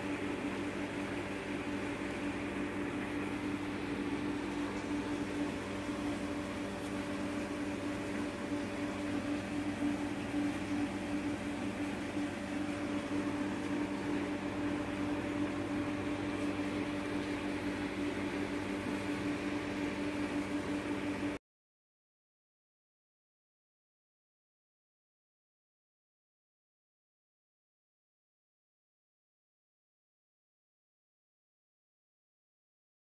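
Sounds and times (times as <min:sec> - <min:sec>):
machine hum: 0:00.0 - 0:21.4.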